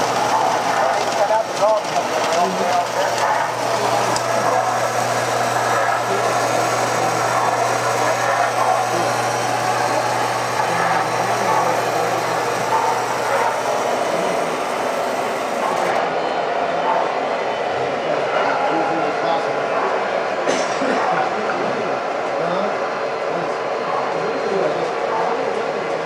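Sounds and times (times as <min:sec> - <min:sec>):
model train wheels rumbling: 0:00.0 - 0:16.0.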